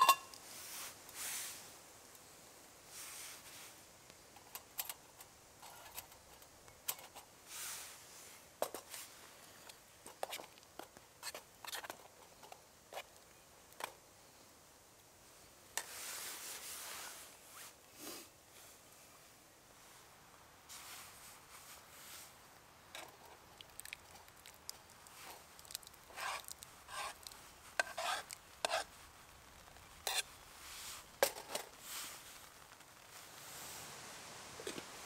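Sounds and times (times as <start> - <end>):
spork scraping metal pot: 0.0 - 0.4, 25.3 - 28.9, 30.0 - 30.3.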